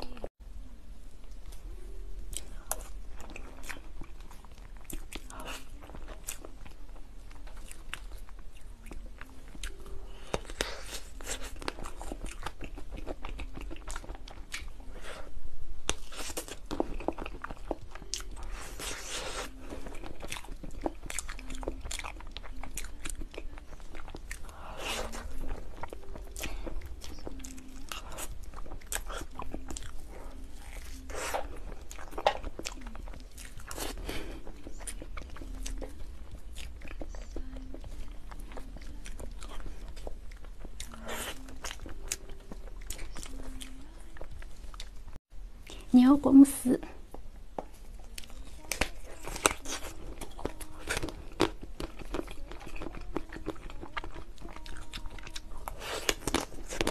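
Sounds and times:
wet chewing and lip smacks: 15.8 - 45.8.

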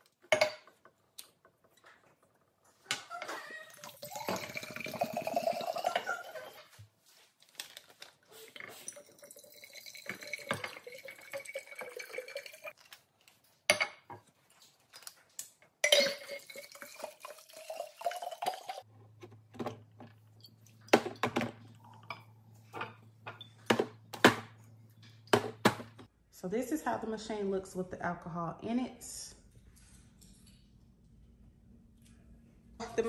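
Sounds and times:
liquor pouring into glass: 3.8 - 6.5, 8.9 - 12.7, 15.9 - 18.8
glass clinks and knocks: 15.8 - 16.5.

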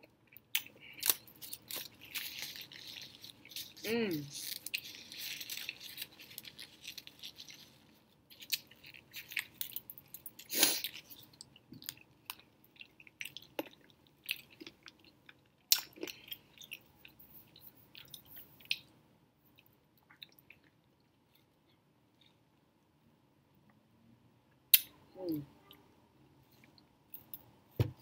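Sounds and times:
close-up chewing: 0.0 - 18.9.

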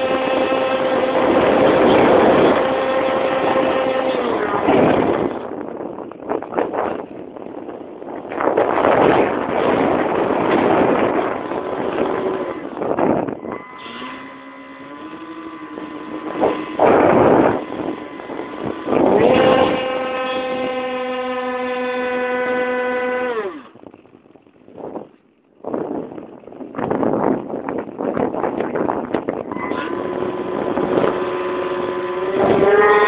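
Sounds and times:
electric motors whining: 0.0 - 5.7, 9.3 - 23.8, 29.4 - 33.0
wind rushing: 15.2 - 21.4.

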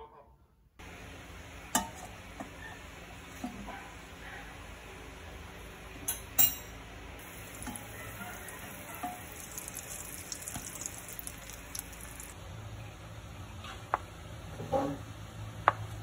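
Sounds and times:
butter sizzling in a frying pan: 7.2 - 12.4.

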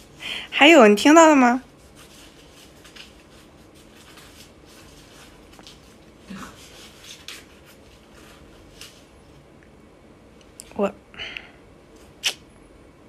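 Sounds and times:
faint rustling: 1.2 - 9.4.

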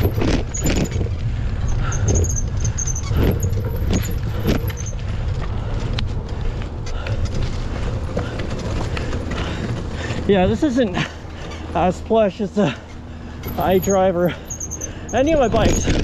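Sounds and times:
bike rattles and knocks: 0.0 - 16.0
tyres rumbling on dirt: 0.0 - 16.0.

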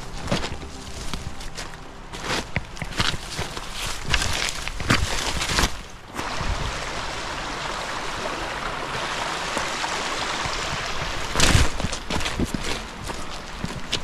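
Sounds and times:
footsteps on loose cobbles: 0.0 - 6.0, 10.4 - 14.0
creek water running over stones: 0.0 - 14.0.

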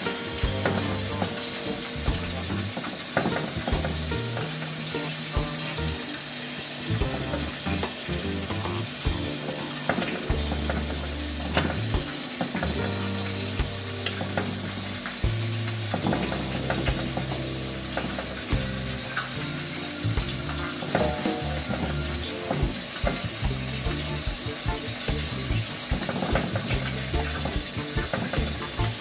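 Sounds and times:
background music with bass: 0.0 - 29.0
pot hissing on low heat: 0.0 - 29.0.

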